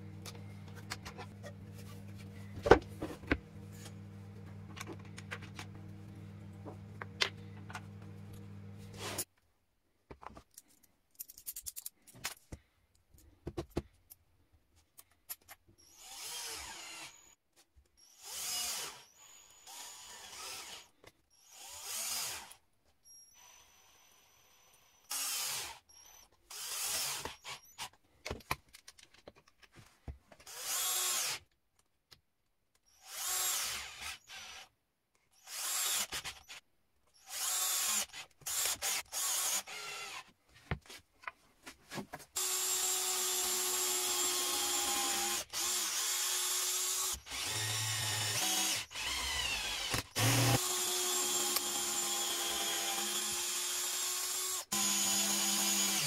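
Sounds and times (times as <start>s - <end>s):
cordless drill driving screws: 15.8s - 17.3s, 18.0s - 24.0s, 30.5s - 31.4s, 32.9s - 34.7s, 35.4s - 36.6s, 37.2s - 40.3s, 42.4s - 56.0s.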